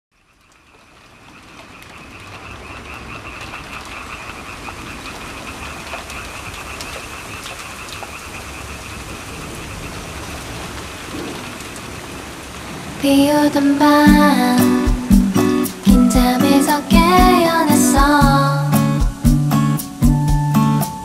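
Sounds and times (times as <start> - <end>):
steady rain: 0.1 - 21.0
frogs trilling: 0.2 - 11.0.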